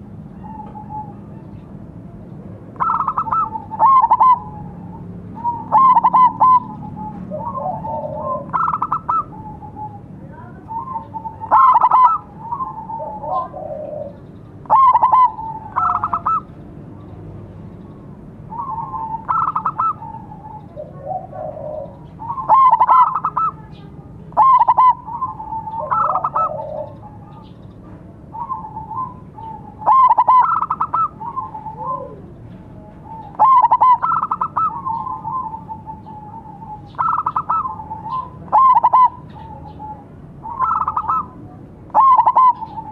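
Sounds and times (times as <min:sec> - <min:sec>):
dove stuttering cooing: 0:02.8 - 0:04.8, 0:05.4 - 0:09.9, 0:10.7 - 0:16.5, 0:18.5 - 0:23.6, 0:24.3 - 0:27.2, 0:28.4 - 0:32.3, 0:33.1 - 0:42.9
second dove low cooing: 0:02.8 - 0:10.1, 0:10.7 - 0:16.5, 0:18.5 - 0:23.6, 0:24.3 - 0:27.5, 0:28.3 - 0:42.9.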